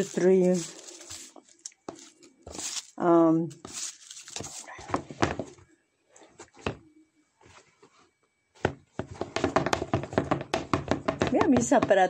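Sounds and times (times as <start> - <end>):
sharp taps and knocks: 8.6 - 12.0.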